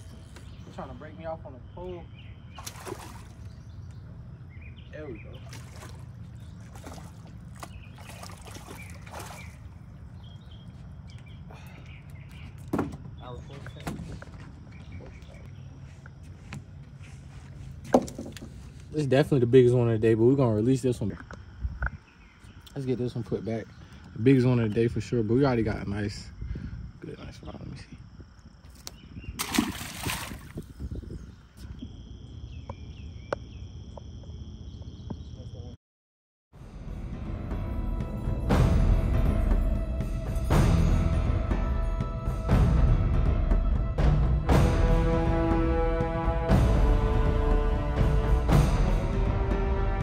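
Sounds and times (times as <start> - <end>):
birds chirping: 0.0 - 35.8.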